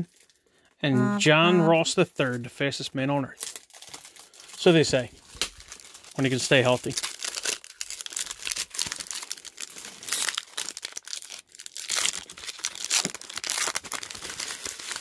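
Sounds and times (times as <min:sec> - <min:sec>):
foil wrapper tearing and crinkling: 0:00.1 - 0:00.4, 0:03.4 - 0:15.0.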